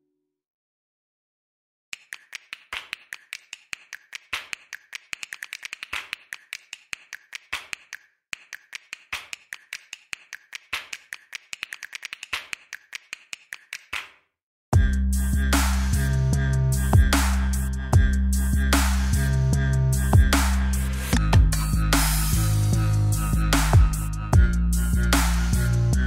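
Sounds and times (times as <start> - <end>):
rapid sharp clicks: 1.9 - 14.1.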